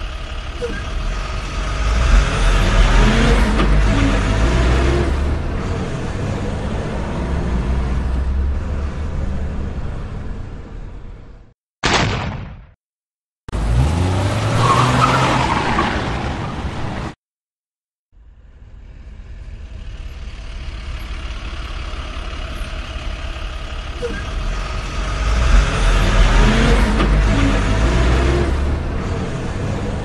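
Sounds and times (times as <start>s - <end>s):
vehicle engine revving: 0.0s - 10.5s, 13.5s - 15.4s, 20.9s - 30.0s
vehicle driving with low rumble: 0.0s - 11.6s, 18.2s - 30.0s.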